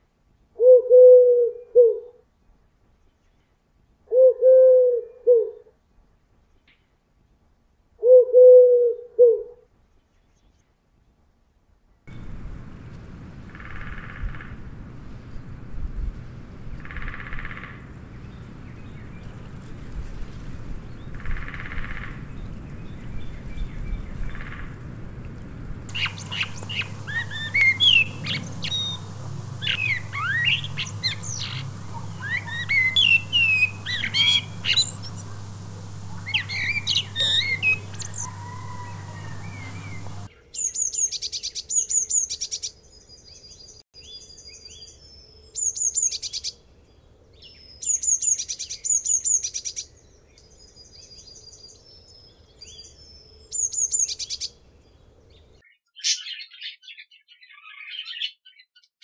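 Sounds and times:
blue tit high rapid trills: 25.9s - 40.3s
blackbird singing fluty phrases: 25.9s - 46.6s, 47.4s - 54.6s, 55.6s - 59.0s.

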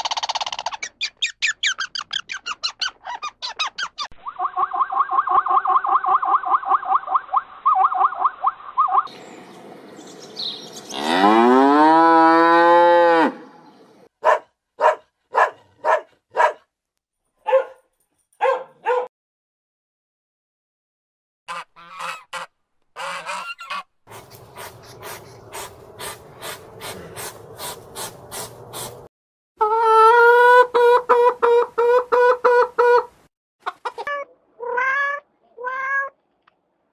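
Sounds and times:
cow mooing: 10.9s - 13.6s.

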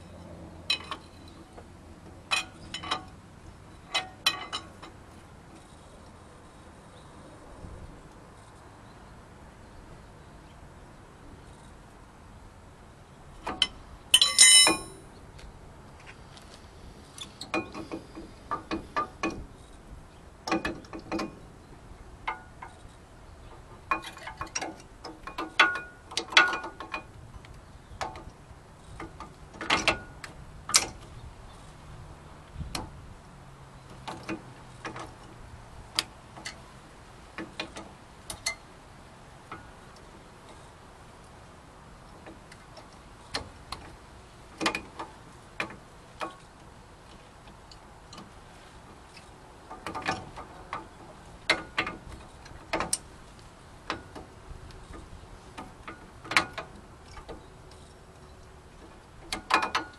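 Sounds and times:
metal tools clinking and knocking: 13.6s - 15.0s
ringing metallic clang: 14.2s - 15.1s.

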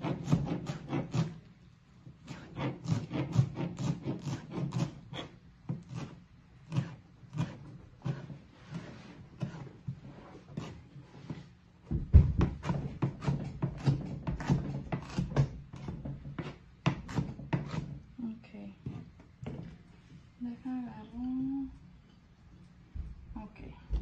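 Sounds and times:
knife chopping on plastic board: 11.9s - 17.9s.

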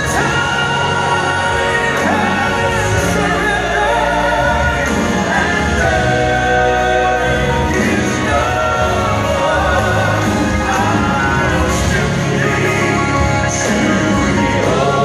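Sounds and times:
backing choir voices: 0.0s - 15.0s
live band playing gospel music: 0.0s - 15.0s
man singing lead vocals: 0.0s - 15.0s.

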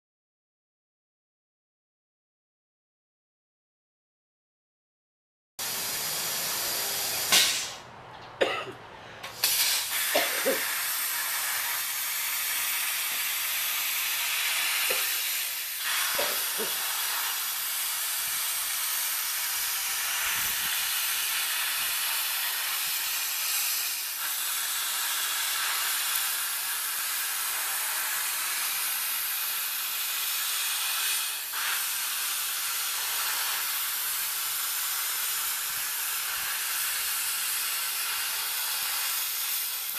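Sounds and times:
plasma torch arc hissing: 5.6s - 7.8s, 9.2s - 39.9s
sharp pops: 7.2s - 7.8s.

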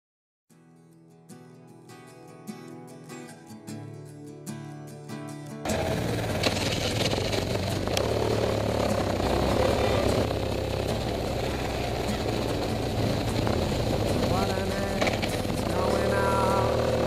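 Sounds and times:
motorcycle engine drone: 5.7s - 17.0s.

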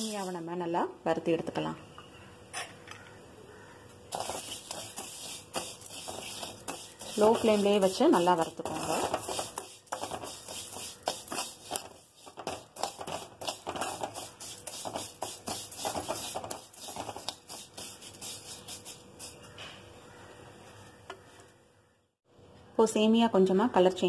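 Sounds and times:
ladle scraping metal pan: 4.1s - 19.5s
vermicelli strands rustling: 4.1s - 19.5s.

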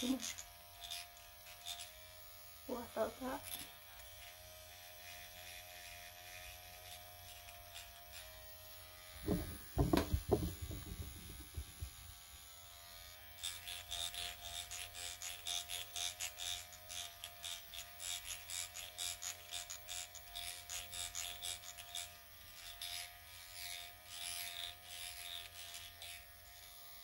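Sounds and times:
microneedling pen buzzing: 0.0s - 27.0s
loud low thumps: 9.2s - 12.0s.

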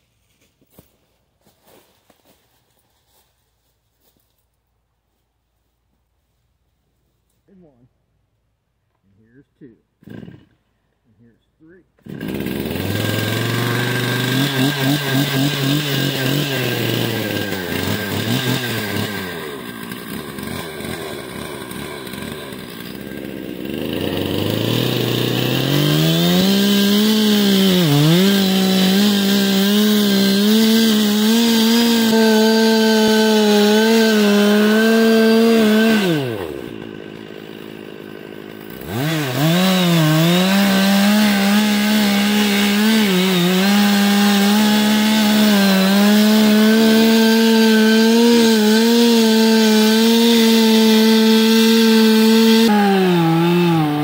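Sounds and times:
chainsaw cutting wood: 9.6s - 10.7s, 12.0s - 54.0s.

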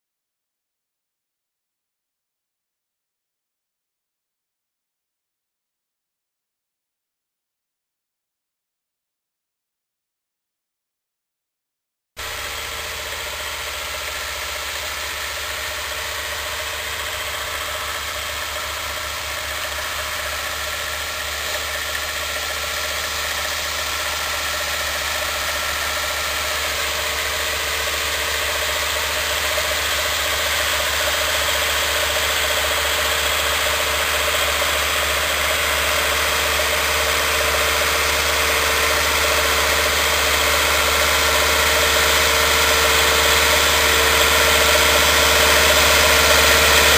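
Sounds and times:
tractor diesel engine running: 12.2s - 46.9s.

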